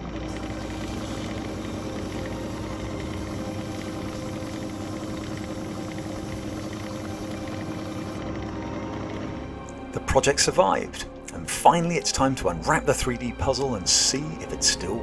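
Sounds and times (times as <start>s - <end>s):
lathe motor hum: 0.0s - 9.9s
abrasive hissing on spinning cylinder: 0.3s - 8.2s.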